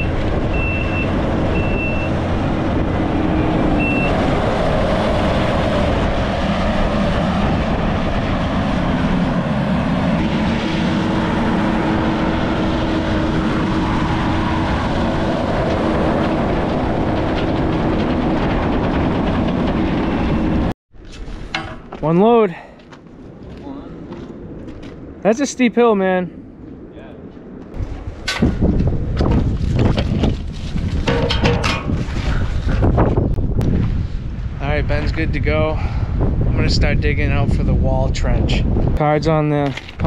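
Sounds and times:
reversing alarm beeps: 0.0 - 2.2, 3.8 - 4.2
heavy vehicle engine running: 0.0 - 20.7.

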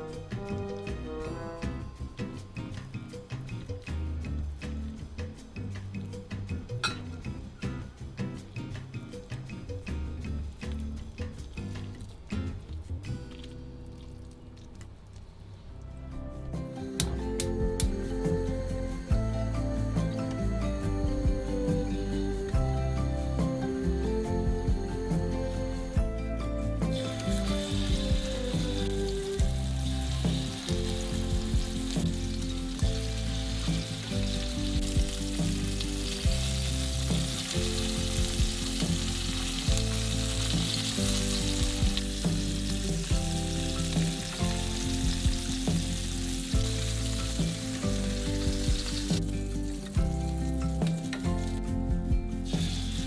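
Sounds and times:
light background music: 0.0 - 53.0
meat sizzling in a frying pan: 26.9 - 51.7, 52.3 - 53.0.

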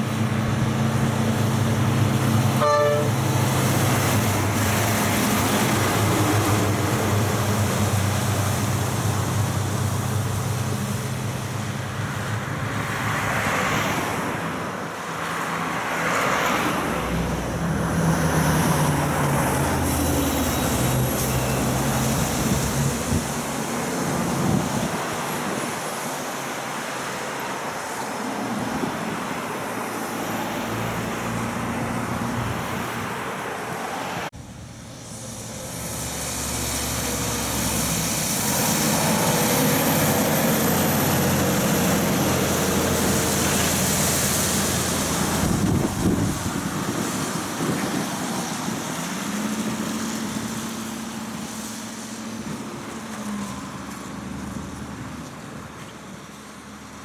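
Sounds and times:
truck engine: 0.0 - 57.0
truck engine drone: 0.0 - 57.0
tyres hissing on wet road: 0.0 - 57.0.

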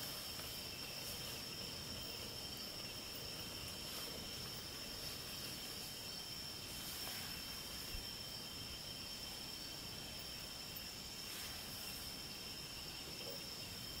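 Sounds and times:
night insects chorus: 0.0 - 14.0.

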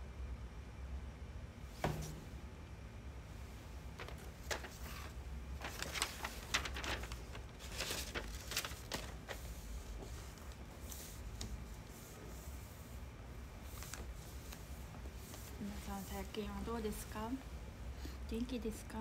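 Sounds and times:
steady low hum: 0.0 - 19.0
sheet rustling and crackling: 3.4 - 17.4.

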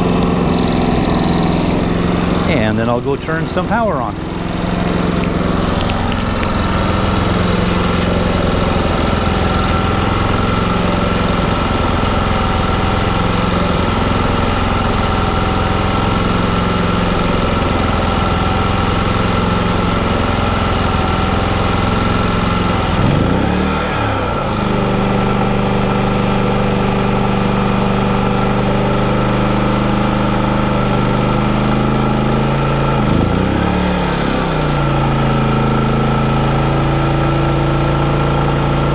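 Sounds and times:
generator engine running: 0.0 - 38.9.

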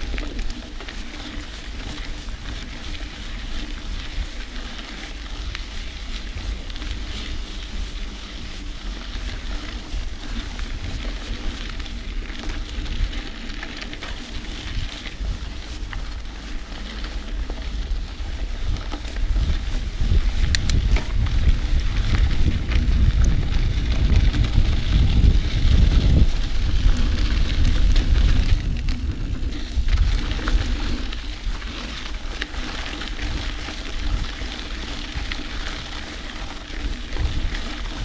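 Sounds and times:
bike clicks and rattles: 0.0 - 38.0
bike tyres crunching on dirt: 0.0 - 38.0
wind buffeting microphone: 0.0 - 38.0.

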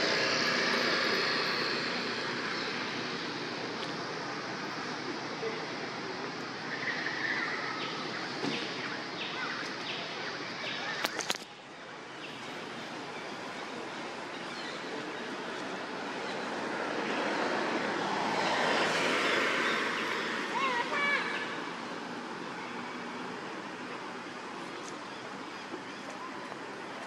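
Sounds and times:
outdoor background noise: 0.0 - 27.0.

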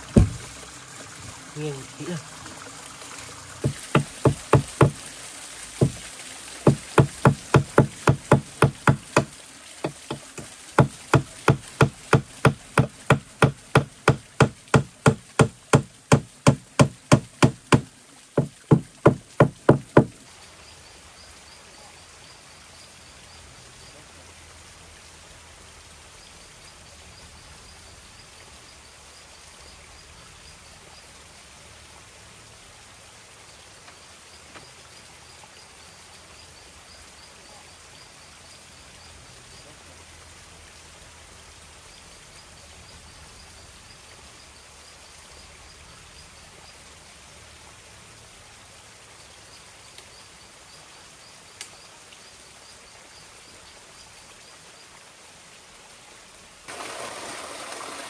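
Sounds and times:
hammer striking wood: 0.1 - 0.5, 3.6 - 5.1, 5.8 - 6.0, 6.6 - 20.2.

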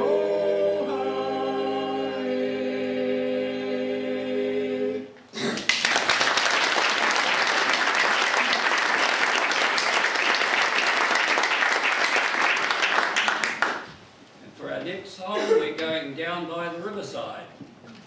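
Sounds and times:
audience applauding: 5.6 - 13.9.

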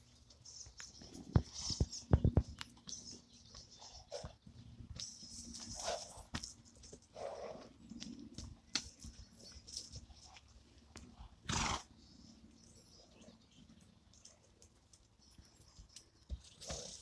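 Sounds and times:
hoofbeats on grass: 0.4 - 10.3.

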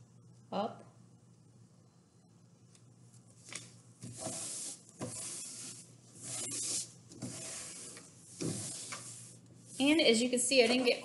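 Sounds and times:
hands rubbing paper on cardboard: 4.1 - 10.0.

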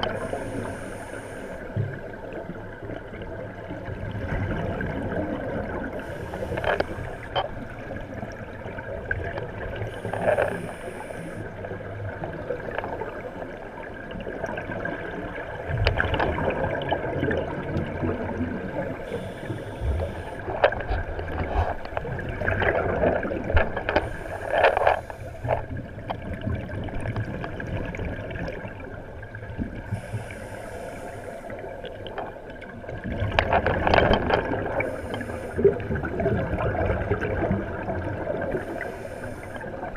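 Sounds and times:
regulator air bubbles gurgling: 0.0 - 39.9
steady underwater hum: 0.0 - 39.9.

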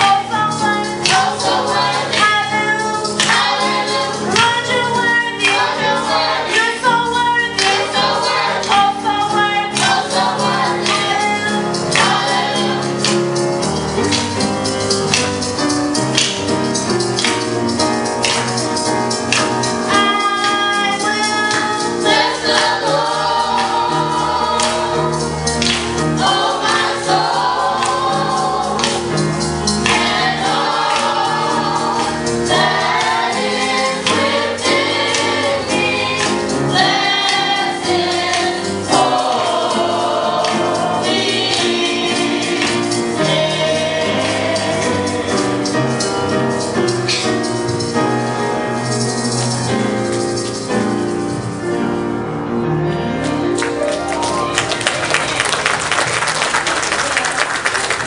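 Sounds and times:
voices singing: 0.0 - 14.2, 19.9 - 47.3
steady percussive beat: 0.0 - 52.1
instrumental accompaniment: 0.0 - 58.0.

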